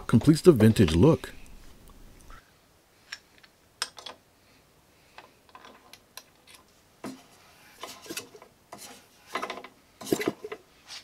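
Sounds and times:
scrapes and clicks of handling: 5.2 - 11.0.

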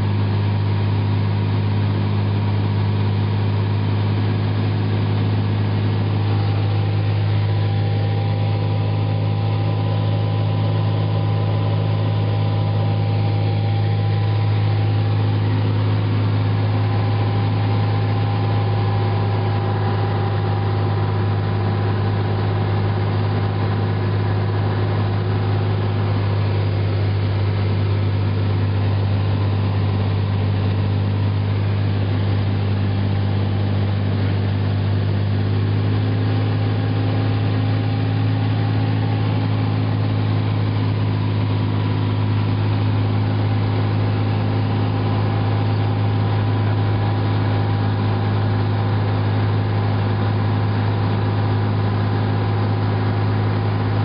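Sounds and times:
aircraft engine and propeller droning: 2.4 - 50.6.

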